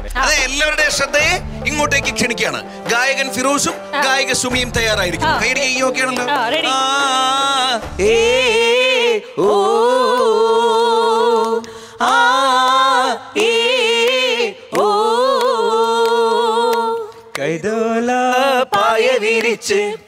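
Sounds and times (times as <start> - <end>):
person singing unaccompanied: 5.2 - 20.0.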